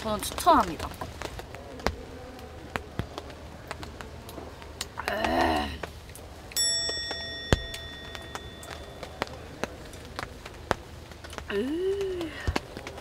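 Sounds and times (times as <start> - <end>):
bright ringing chime: 6.6 - 9.4.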